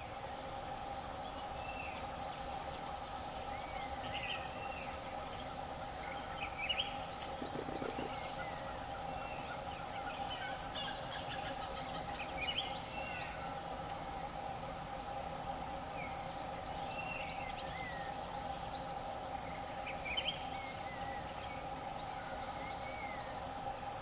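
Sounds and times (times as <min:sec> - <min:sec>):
insect drone: 0:00.0 - 0:24.0
birds chirping: 0:03.4 - 0:13.5.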